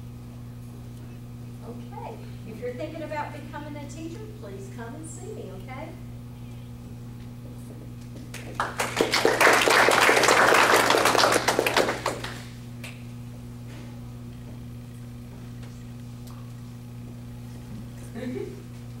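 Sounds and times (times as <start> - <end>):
low electrical hum: 0.0 - 19.0
audience applauding: 8.3 - 12.6.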